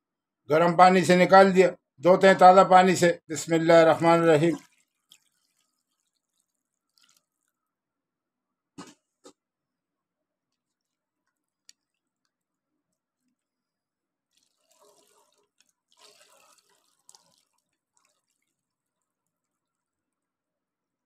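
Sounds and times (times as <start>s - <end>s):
water sloshing and dripping: 4.0s - 7.8s, 13.2s - 20.2s.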